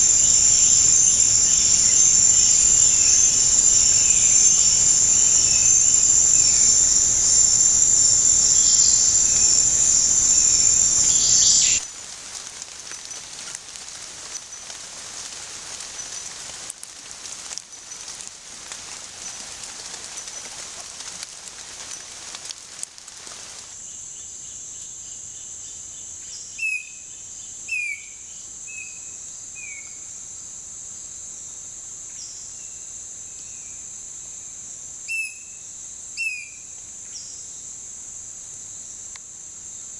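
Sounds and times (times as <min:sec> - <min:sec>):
bird chirping: 0:00.0 - 0:11.8
insects droning high-pitched: 0:00.0 - 0:39.9
quiet hiss: 0:00.0 - 0:39.9
thin high insect whine: 0:00.0 - 0:39.9.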